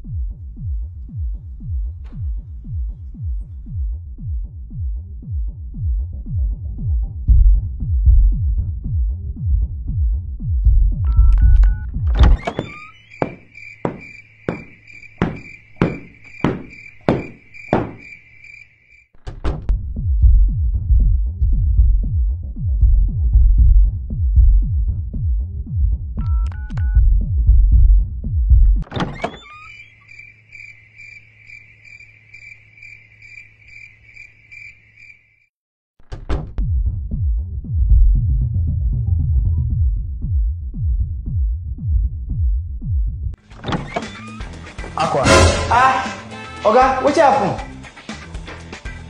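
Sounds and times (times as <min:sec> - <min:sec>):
bass-heavy electronic dance music: 0:00.0 - 0:11.0, 0:19.9 - 0:26.2, 0:45.0 - 0:47.8
heavy thuds: 0:12.1 - 0:18.3
cricket chirping: 0:12.2 - 0:19.1, 0:29.0 - 0:35.5.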